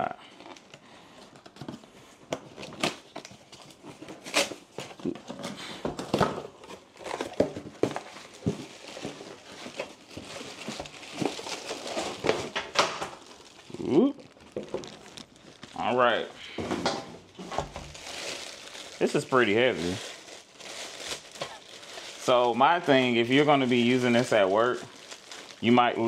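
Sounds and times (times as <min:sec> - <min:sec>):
plastic bag crinkling: 0:06.5 - 0:26.0.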